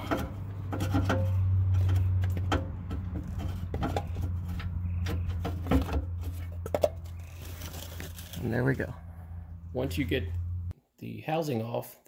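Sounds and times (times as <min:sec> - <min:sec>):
oil filter housing scraping and clicking: 0:00.0 - 0:08.6.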